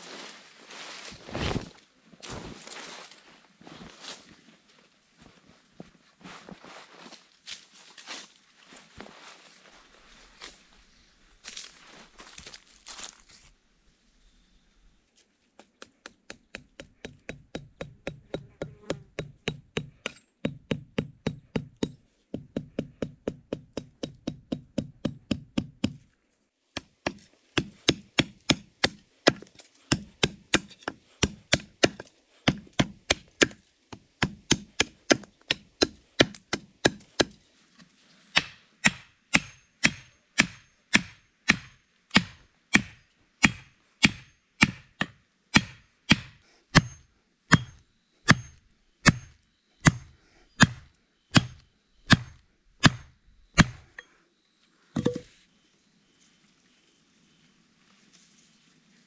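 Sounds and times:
hatchet chopping wood: 15.6 - 26.1, 26.8 - 37.4, 38.4 - 54.0, 55.0 - 55.3.

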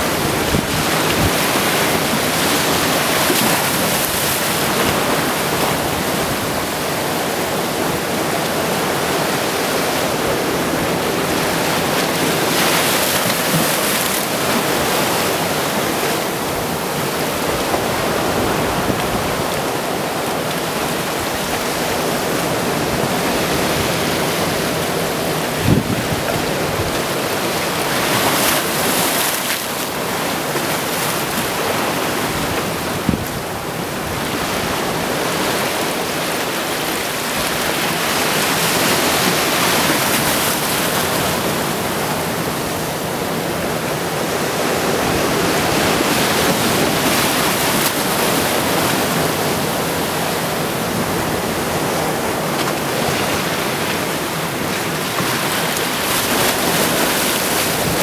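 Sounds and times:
waves washing over sand: 0.0 - 58.0.

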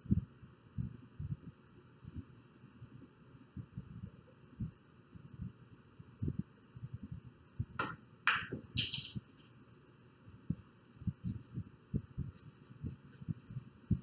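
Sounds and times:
soft low thumps: 0.0 - 1.5, 10.4 - 14.0
cue striking ball: 7.8 - 8.6
billiard balls clacking: 7.8 - 9.2.

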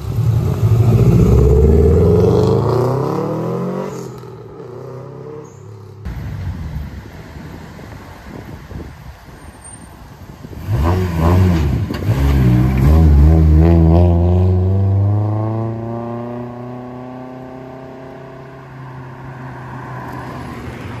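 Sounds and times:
car engine accelerating: 0.0 - 6.1.

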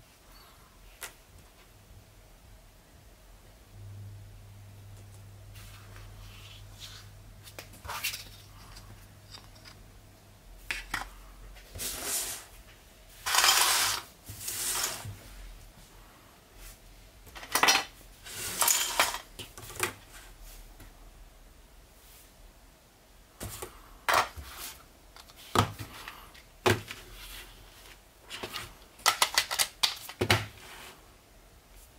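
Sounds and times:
plastic pieces rattling and scraping: 13.2 - 15.0, 17.4 - 19.9, 28.3 - 30.3
plastic pieces clicking on tabletop: 29.0 - 30.3.

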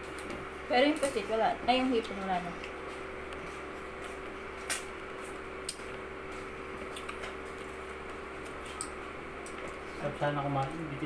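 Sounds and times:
low room hum: 0.0 - 11.0.

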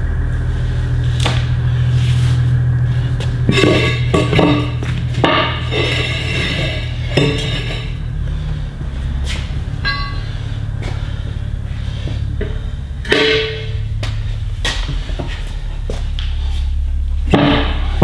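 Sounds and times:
background music with bass: 0.0 - 18.0
tire bar clanking on metal: 3.2 - 8.2, 9.2 - 16.4, 17.2 - 18.0.

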